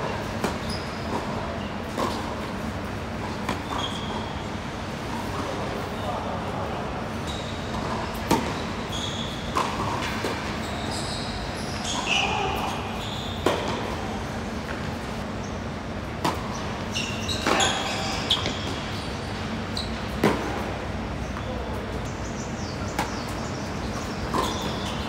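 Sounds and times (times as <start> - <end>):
shoes squeaking on court: 0.1 - 4.5, 7.1 - 25.0
tennis balls struck by rackets: 16.2 - 16.7, 20.0 - 21.4, 22.9 - 25.0.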